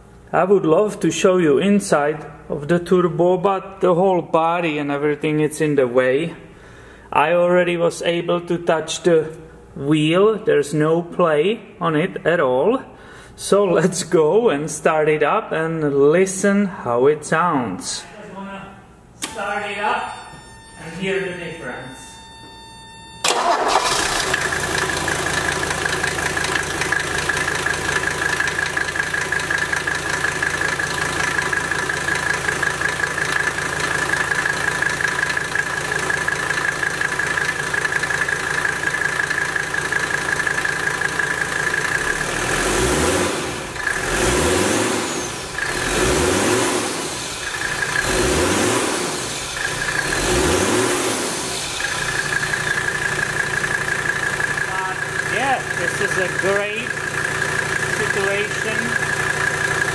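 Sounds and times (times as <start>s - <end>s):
turbocharger whine: 20.0s - 59.9s
diesel engine idling and revving: 23.3s - 59.9s.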